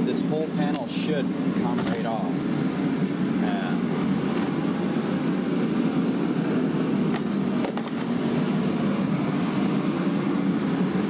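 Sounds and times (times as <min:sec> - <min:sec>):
low rushing background noise: 0:00.0 - 0:11.0.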